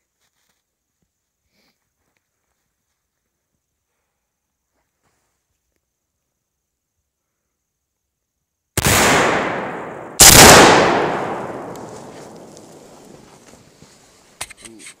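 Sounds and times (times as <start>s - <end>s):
target explosion: 8.8s - 13.0s
rifle shot: 8.8s - 13.2s
echoing rumble: 9.0s - 13.1s.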